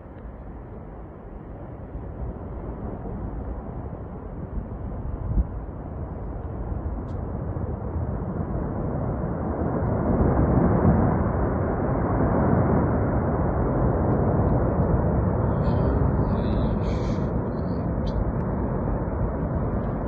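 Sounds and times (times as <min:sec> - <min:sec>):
avalanche low rumble: 0:00.0 - 0:20.0.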